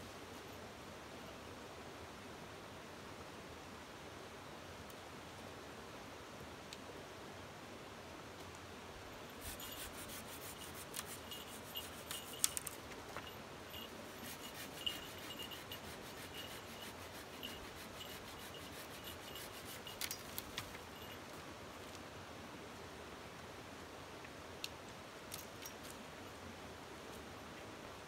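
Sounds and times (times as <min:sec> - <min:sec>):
knife scraping wood: 0:09.4 - 0:12.8, 0:13.8 - 0:20.8.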